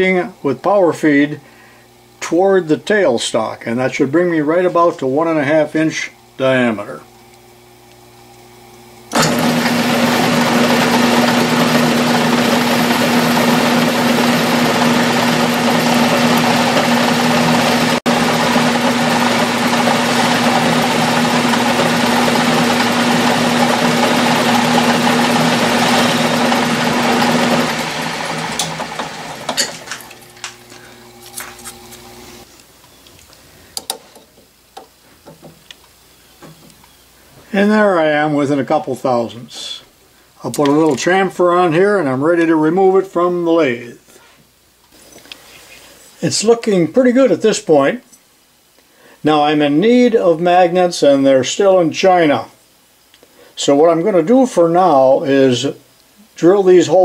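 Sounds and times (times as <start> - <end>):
metal lathe humming: 9.0 - 32.5.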